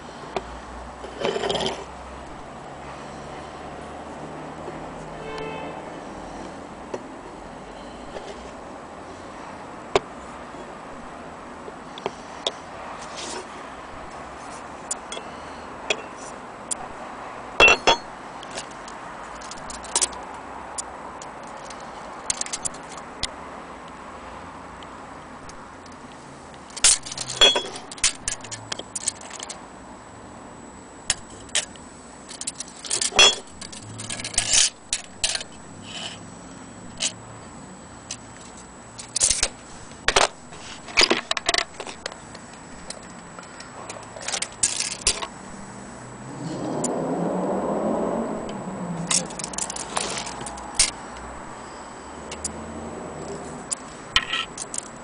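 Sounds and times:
metallic clicks and clinks: 17.6s - 20.2s, 20.8s - 23.1s, 26.7s - 29.6s, 32.3s - 35.6s, 42.8s - 45.3s, 49.0s - 51.0s, 53.2s - 55.0s.

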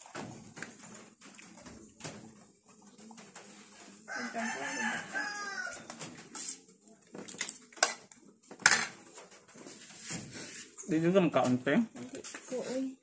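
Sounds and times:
rooster crowing: 4.1s - 5.9s.

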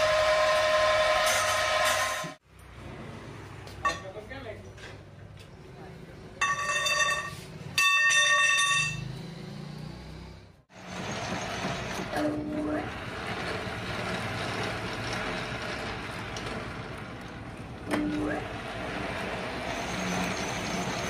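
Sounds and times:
steel pipe ringing on concrete: 6.4s - 9.0s
metal lathe running: 10.7s - 21.0s.

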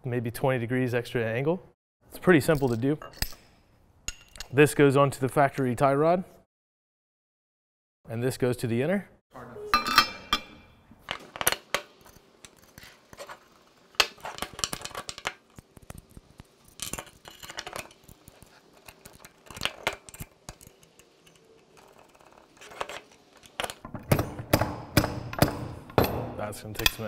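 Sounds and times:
metal parts clinking and knocking: 9.8s - 27.0s.

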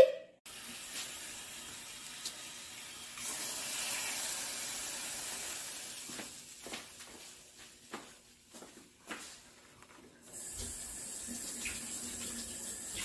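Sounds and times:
egg sizzling in a pan: 0.5s - 6.6s.

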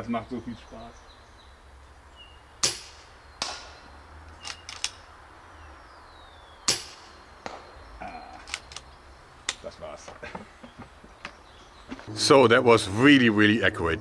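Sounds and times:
air rifle shots: 2.6s - 5.1s, 6.6s - 7.8s
light clicks: 8.3s - 9.6s.

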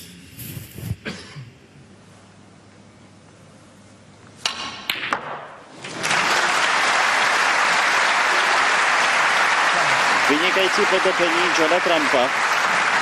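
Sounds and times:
crowd applauding: 5.7s - 13.0s.

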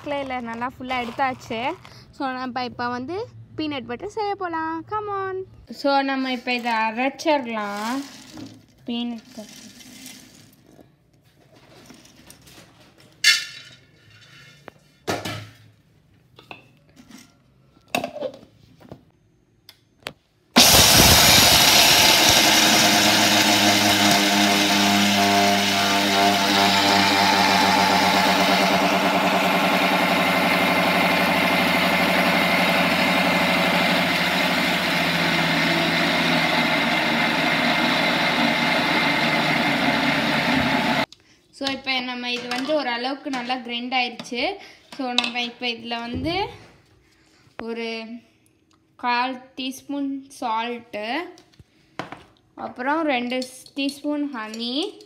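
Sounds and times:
mixer grinder motor grinding: 20.6s - 41.1s.

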